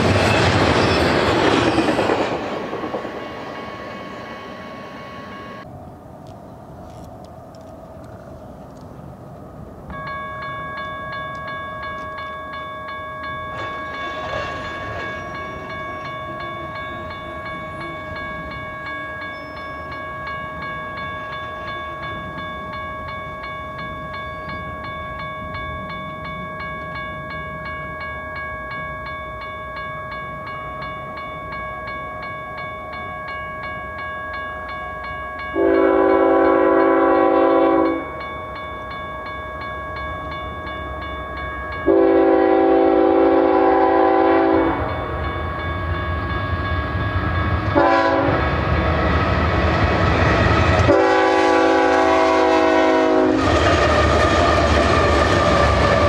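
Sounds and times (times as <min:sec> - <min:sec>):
crossing warning bell ringing: 0:00.0 - 0:05.7, 0:09.9 - 0:56.0
locomotive air horn: 0:35.6 - 0:38.0, 0:41.9 - 0:44.9, 0:47.8 - 0:48.4, 0:50.9 - 0:53.6.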